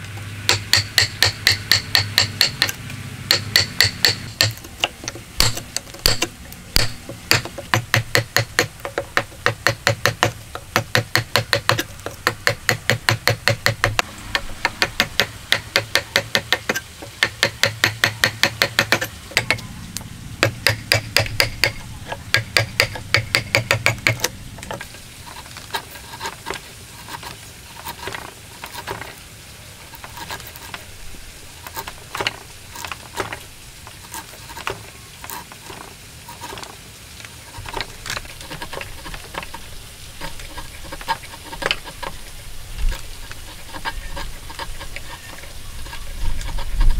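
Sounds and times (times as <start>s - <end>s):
chisel struck chopping wood: 0.5s - 19.6s, 20.4s - 24.3s
chisel scraping and paring wood: 0.5s - 19.7s, 20.4s - 29.2s, 29.9s - 46.9s.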